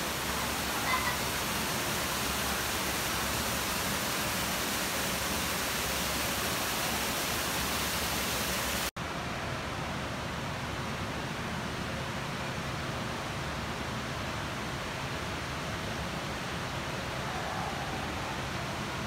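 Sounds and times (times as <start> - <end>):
waterfall splashing into pool: 0.0 - 8.9
dull steady hiss: 0.0 - 19.0.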